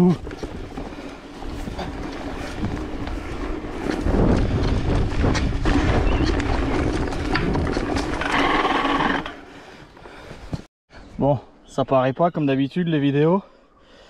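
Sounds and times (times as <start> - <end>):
wind buffeting microphone: 0.0 - 9.2
bike rattling and clicking: 0.0 - 9.7.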